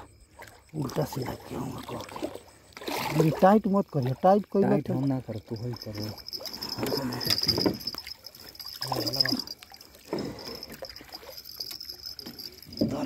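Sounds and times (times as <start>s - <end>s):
high insect trill: 0.0s - 13.0s
water splashes: 0.3s - 13.0s.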